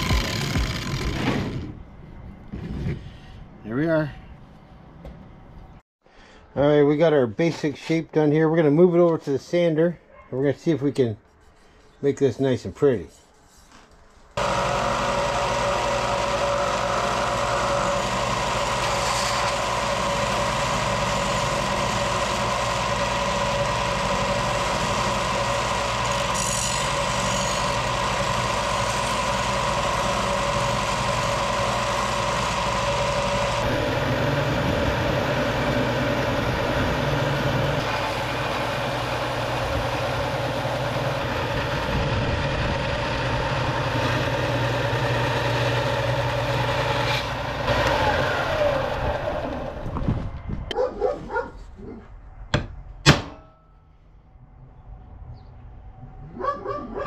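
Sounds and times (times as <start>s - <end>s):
steel grinding against sanding belt: 14.4s - 41.6s
belt sander running: 14.4s - 50.1s.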